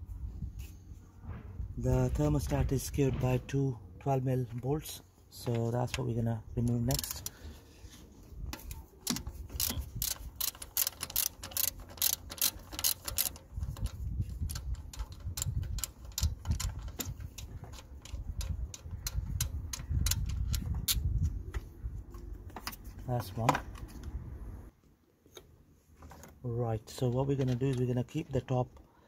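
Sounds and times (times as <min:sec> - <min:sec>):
ratchet wrench clicking: 0:06.9 - 0:07.4, 0:09.0 - 0:21.0.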